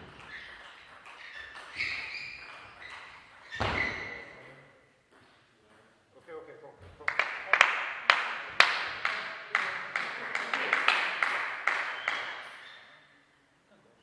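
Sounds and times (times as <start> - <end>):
people clapping in a hall: 7.0 - 12.9.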